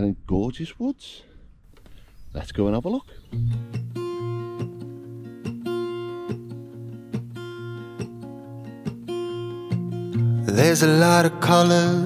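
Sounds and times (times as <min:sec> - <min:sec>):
acoustic guitar strumming: 0:03.3 - 0:12.0.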